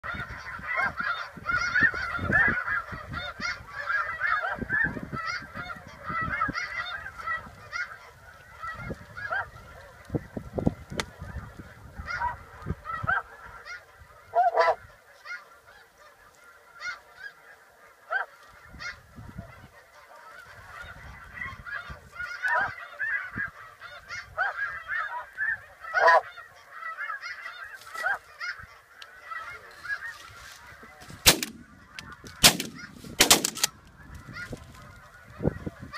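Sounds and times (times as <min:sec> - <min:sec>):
wind buffeting microphone: 0:00.0 - 0:15.0, 0:18.6 - 0:19.8, 0:20.5 - 0:24.5, 0:30.6 - 0:35.9
geese honking chorus: 0:00.0 - 0:35.9.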